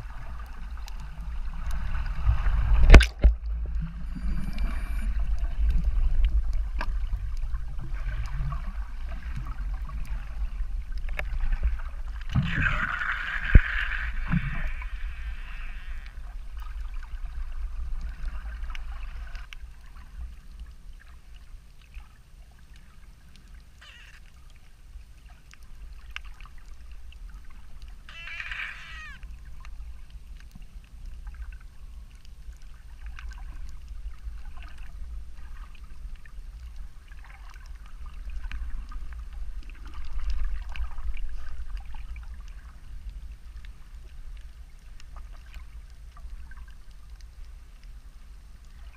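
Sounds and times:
bubbly gurgle: 0:00.0 - 0:20.1
faint clicks and crackles: 0:00.0 - 0:48.9
underwater rumble of moving water: 0:00.0 - 0:48.9.

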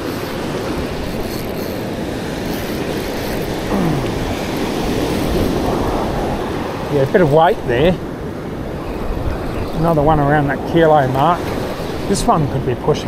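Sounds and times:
wind rumbling on microphone: 0:00.0 - 0:12.8
surf washing up a beach: 0:03.5 - 0:13.0
short falling voice: 0:03.7 - 0:04.3.

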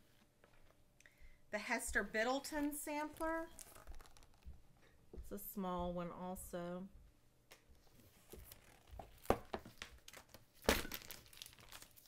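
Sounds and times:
book pages rustling: 0:02.5 - 0:04.7, 0:07.8 - 0:12.0
page flips: 0:03.0 - 0:04.6, 0:08.0 - 0:10.5.

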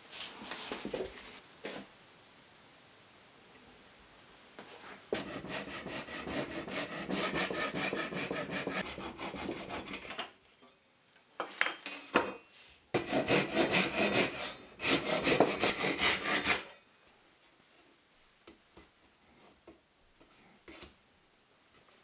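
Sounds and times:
hand saw rasping through wood: 0:05.1 - 0:10.2, 0:13.0 - 0:16.7.

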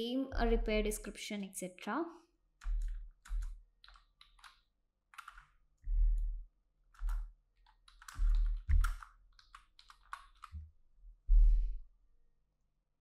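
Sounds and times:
computer keyboard typing: 0:02.6 - 0:05.6, 0:06.9 - 0:10.6.

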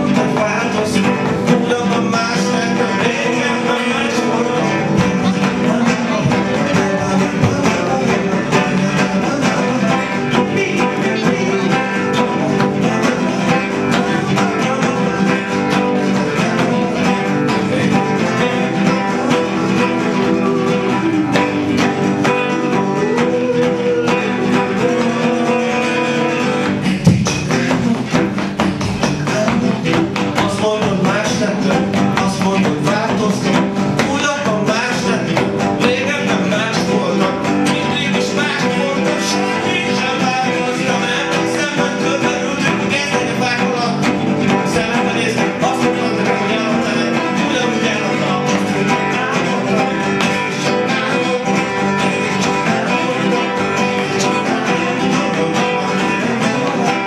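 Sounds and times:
acoustic guitar strummed: 0:00.0 - 0:57.0
man singing: 0:00.0 - 0:57.0.

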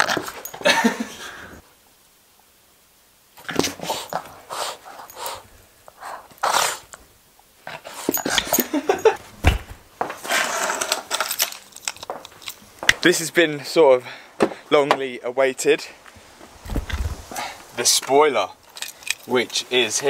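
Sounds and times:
low thump: 0:09.4 - 0:09.8.

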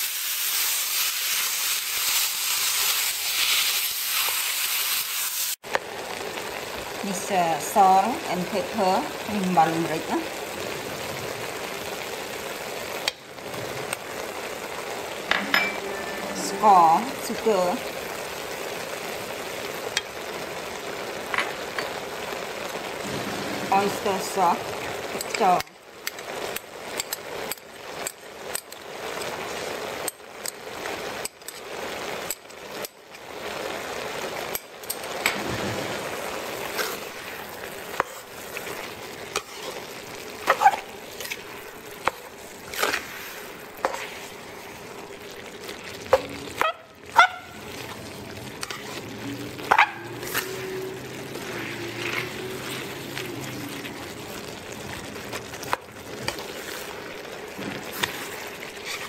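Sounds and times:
meat sizzling in a wok: 0:00.0 - 0:59.0
spatula scraping a pan: 0:36.6 - 0:44.4, 0:48.6 - 0:49.0, 0:49.6 - 0:54.8, 0:55.4 - 0:59.0.

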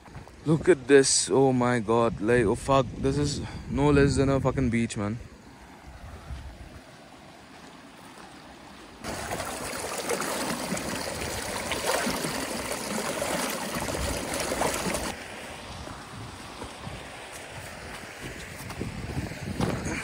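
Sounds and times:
stream water running over rock: 0:07.0 - 0:19.7.

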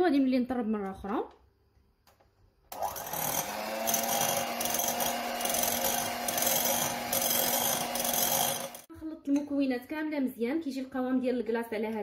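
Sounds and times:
electric hand mixer humming: 0:02.7 - 0:08.9.

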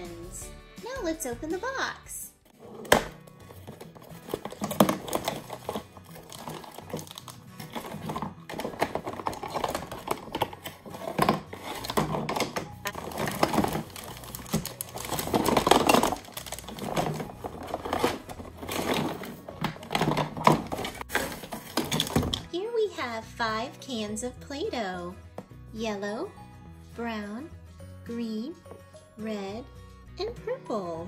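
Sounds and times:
background music: 0:00.0 - 0:31.0
cardboard box opening: 0:02.6 - 0:22.2
plastic parts clicking: 0:02.8 - 0:22.5
plastic bags crinkling: 0:03.5 - 0:22.4.

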